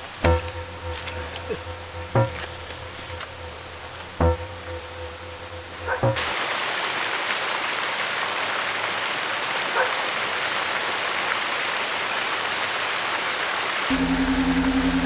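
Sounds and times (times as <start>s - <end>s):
raindrops ticking: 0.0s - 6.3s
steady rain falling: 0.0s - 15.0s.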